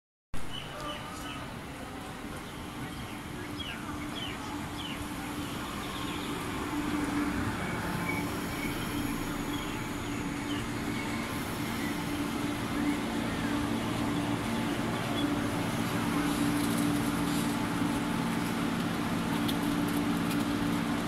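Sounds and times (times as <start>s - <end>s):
train hum: 0.4s - 21.0s
electric train pulling in: 0.6s - 21.0s.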